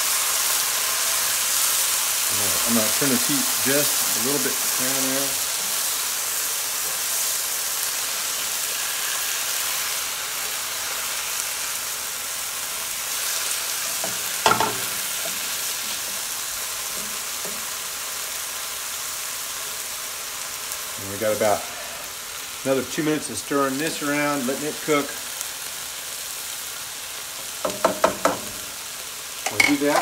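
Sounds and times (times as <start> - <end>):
stir-fry sizzling in a skillet: 0.0 - 30.0.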